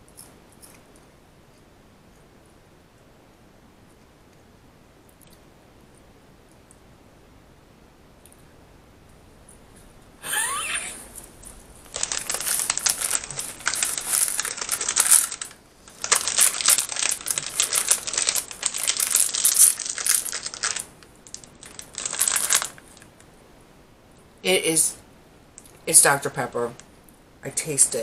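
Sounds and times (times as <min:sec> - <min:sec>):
plastic wrapping crinkling: 0:10.7 - 0:23.2.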